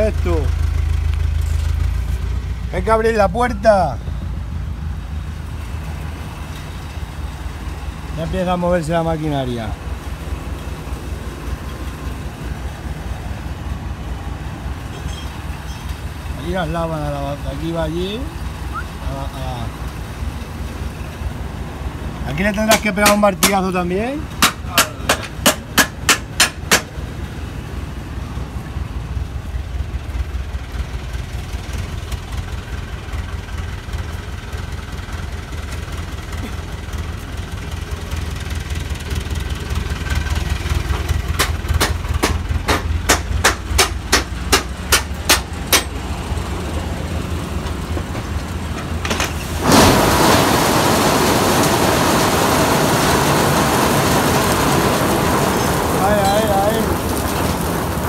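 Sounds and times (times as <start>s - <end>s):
tractor engine running: 0.0s - 58.0s
olives pouring into steel hopper: 48.9s - 58.0s.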